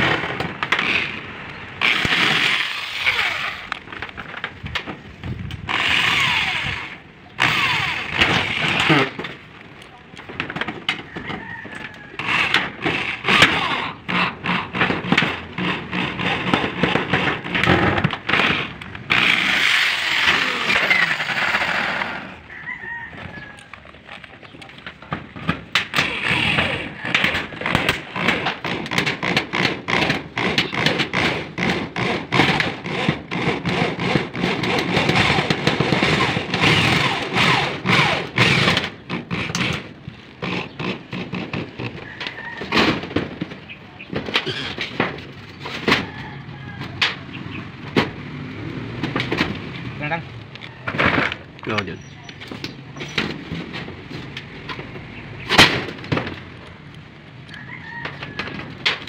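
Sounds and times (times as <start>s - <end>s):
electric drill driving screws: 0.0s - 3.8s, 5.7s - 9.2s, 12.2s - 22.4s, 25.8s - 41.9s
sharp clicking and rattling: 1.8s - 48.2s.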